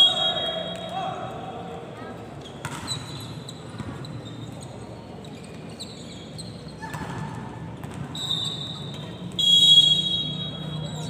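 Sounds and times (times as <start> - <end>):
reverberant hall murmur: 0.0 - 11.0
shoes squeaking on court floor: 2.3 - 9.3.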